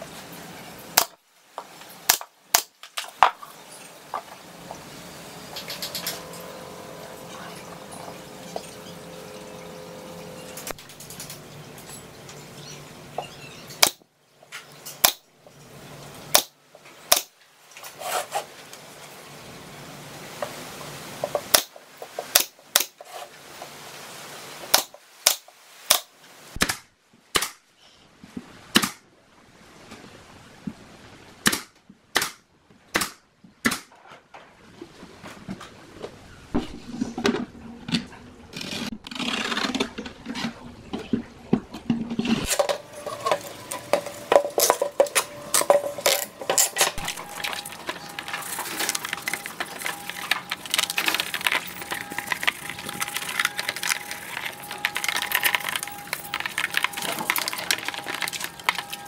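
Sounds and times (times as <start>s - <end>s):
nail gun firing: 17.1s - 17.3s, 22.3s - 22.9s
rubbing and scraping: 17.7s - 18.7s, 21.2s - 23.8s, 34.0s - 59.0s.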